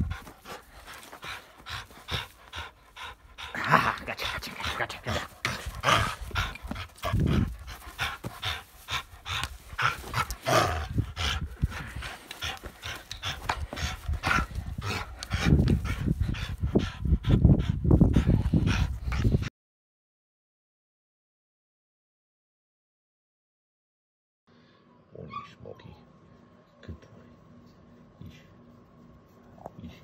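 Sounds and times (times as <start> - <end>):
dog panting hard: 0.0 - 19.5.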